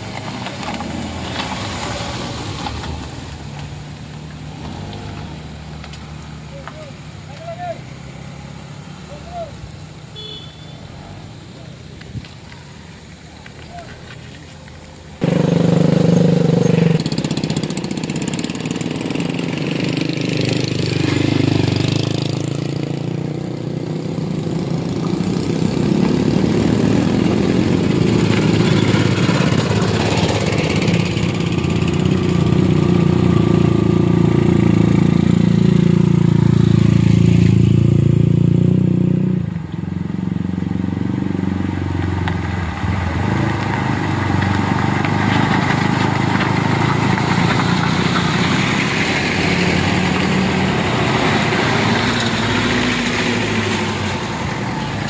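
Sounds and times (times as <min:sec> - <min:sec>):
road vehicle engines running: 0:00.0 - 0:55.0
motor scooter passing: 0:15.2 - 0:55.0.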